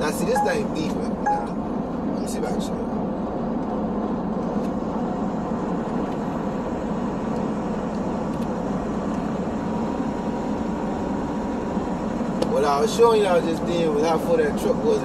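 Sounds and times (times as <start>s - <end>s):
truck engine and road noise: 0.0s - 15.0s.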